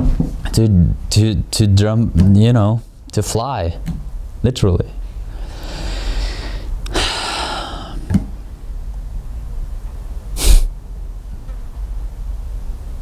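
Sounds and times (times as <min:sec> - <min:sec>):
man breathing into microphone: 0:05.2 - 0:08.1
man sniffing: 0:05.4 - 0:08.1, 0:10.4 - 0:10.7.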